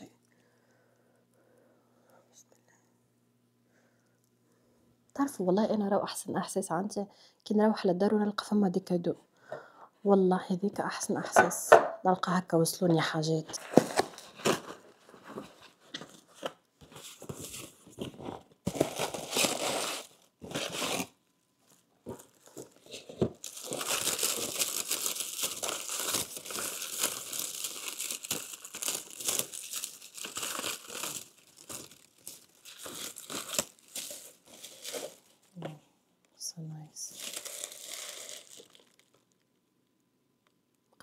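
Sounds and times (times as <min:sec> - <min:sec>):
plastic wrap crinkling: 0:13.5 - 0:35.6, 0:37.1 - 0:39.8
packaging tearing: 0:17.4 - 0:21.2, 0:22.1 - 0:35.4, 0:37.1 - 0:39.4.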